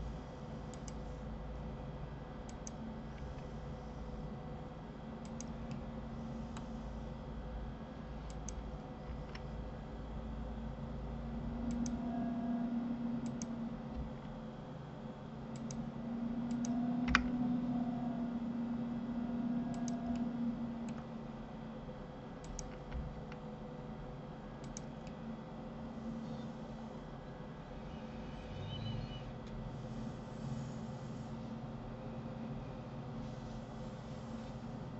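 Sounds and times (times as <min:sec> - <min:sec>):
low steady hum: 0:00.0 - 0:34.9
mouse and keyboard clicks: 0:22.4 - 0:23.4.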